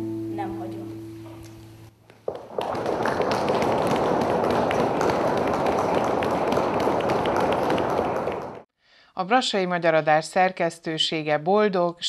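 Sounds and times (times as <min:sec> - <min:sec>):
audience applauding: 0:02.2 - 0:08.7.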